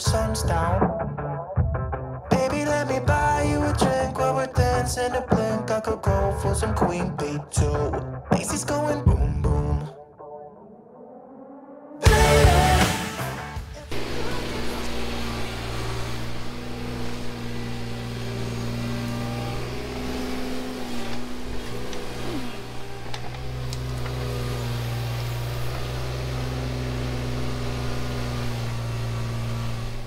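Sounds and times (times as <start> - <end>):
excavator diesel engine running: 12.0 - 30.0.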